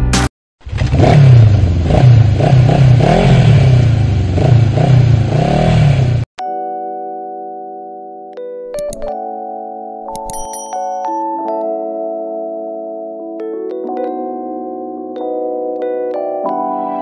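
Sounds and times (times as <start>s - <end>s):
motorcycle engine revving: 0.6s - 6.3s
held chime chord: 10.3s - 11.7s.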